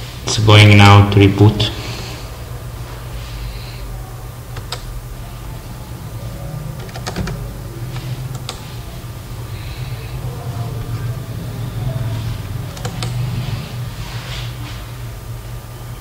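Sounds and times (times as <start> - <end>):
steady low hum: 0.0 - 16.0
computer keyboard keystrokes: 4.6 - 4.9, 6.8 - 7.4, 8.0 - 8.6, 12.7 - 13.2.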